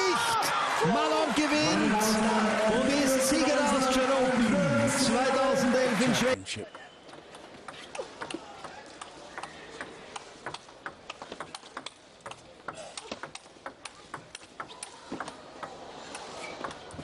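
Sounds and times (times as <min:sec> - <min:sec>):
table tennis ball ticking: 0:07.1 - 0:15.8.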